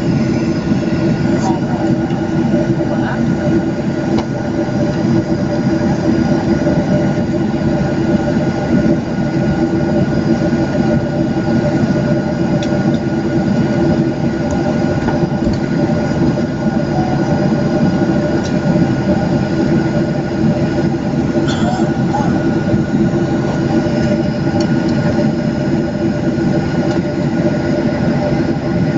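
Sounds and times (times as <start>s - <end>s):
jet engines humming in cabin: 0.0s - 28.9s.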